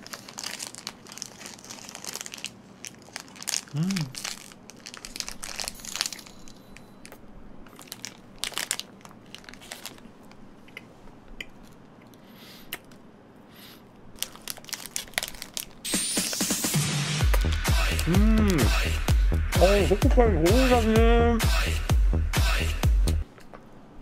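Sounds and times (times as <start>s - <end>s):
plastic wrapper crinkling: 0.0s - 10.5s, 14.1s - 16.5s.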